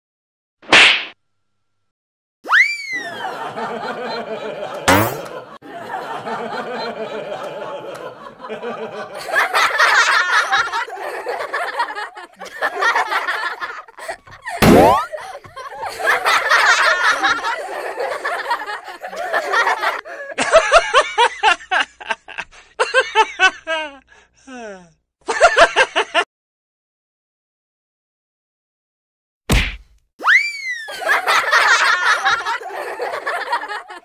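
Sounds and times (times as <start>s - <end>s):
canned laughter: 3.0s - 24.1s, 30.9s - 34.0s.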